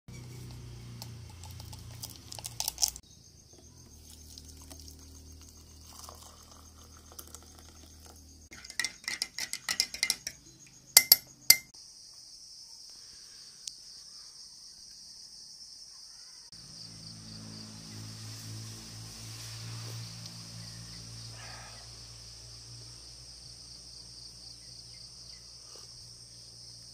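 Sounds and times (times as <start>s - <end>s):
coffee granules ticking into mug: 0.4s - 3.0s, 4.0s - 10.3s
spoon clinking in mug: 5.8s - 7.9s, 8.5s - 11.7s.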